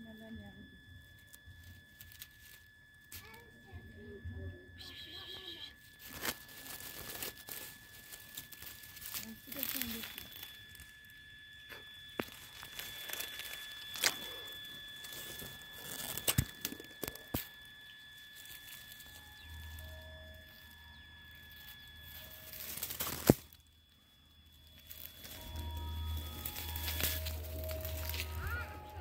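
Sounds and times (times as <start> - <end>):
dry leaves and grass rustling: 1.1 - 3.8, 4.8 - 29.0
sharp crunches: 22.6 - 23.6.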